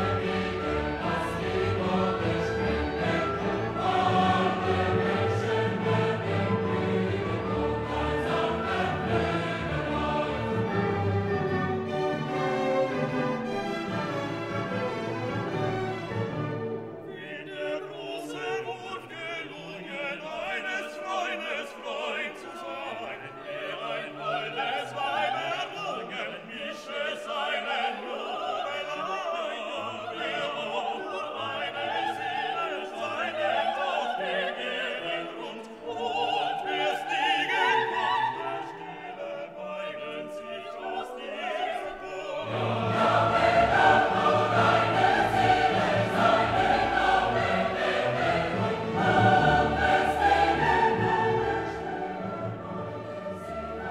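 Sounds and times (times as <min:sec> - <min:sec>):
orchestra playing: 0:00.0 - 0:19.4, 0:41.3 - 0:53.9
choir singing: 0:00.0 - 0:53.9
operatic singing: 0:00.0 - 0:53.9.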